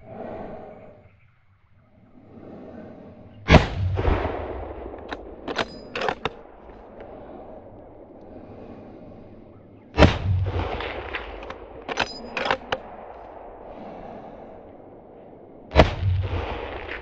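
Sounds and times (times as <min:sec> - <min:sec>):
rifle shot echoing: 0:03.5 - 0:08.0, 0:09.9 - 0:17.0
rifle action metallic clicks: 0:04.9 - 0:07.2, 0:10.0 - 0:13.4.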